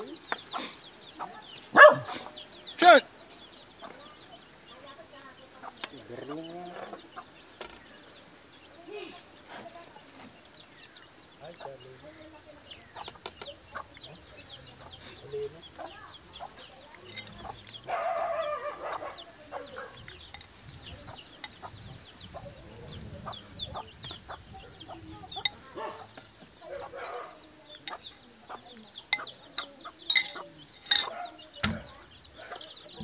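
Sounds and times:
chickens clucking: 0.0s - 33.0s
small birds chirping: 0.0s - 33.0s
steady high hiss: 0.0s - 33.0s
fork clicking against plate: 29.2s - 31.1s.

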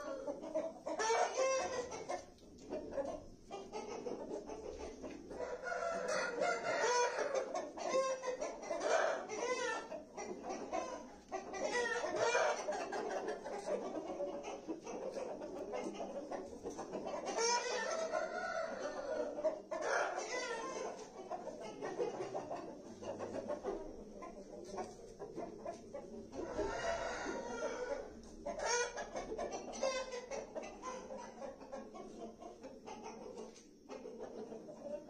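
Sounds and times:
chickens clucking: 0.0s - 35.0s
rooster crowing: 5.4s - 8.1s, 26.4s - 28.0s.

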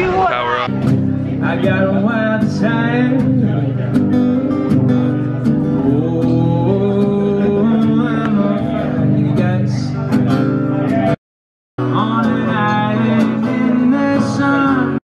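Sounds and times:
acoustic guitar strumming: 0.7s - 11.2s, 11.8s - 15.0s
person singing: 1.3s - 4.0s, 5.7s - 11.1s, 11.8s - 15.0s.

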